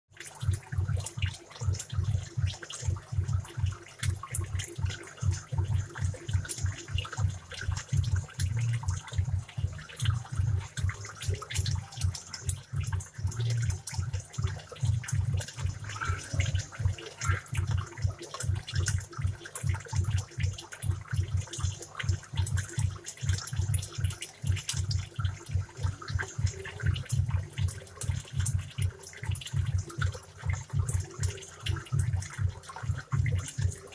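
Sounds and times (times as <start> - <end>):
aquarium air stones bubbling: 0.1 - 33.9.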